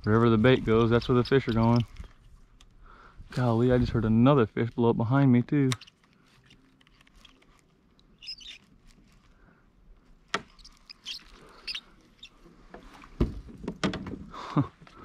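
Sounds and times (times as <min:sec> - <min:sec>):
bird chirps: 0:08.2 - 0:08.7, 0:10.5 - 0:12.4.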